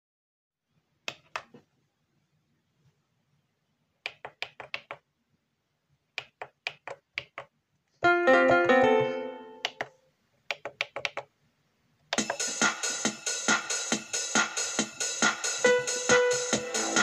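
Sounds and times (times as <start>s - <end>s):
keyboard held chord: 8.0s - 9.8s.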